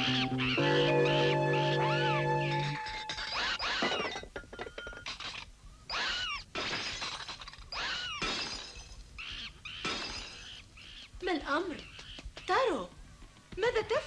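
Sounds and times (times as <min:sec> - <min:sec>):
plates and bowls smashing: 0:00.6 - 0:05.5, 0:06.6 - 0:07.6, 0:08.2 - 0:09.0, 0:09.8 - 0:10.5
ringing clatter of shards: 0:02.5 - 0:05.5, 0:09.8 - 0:10.6.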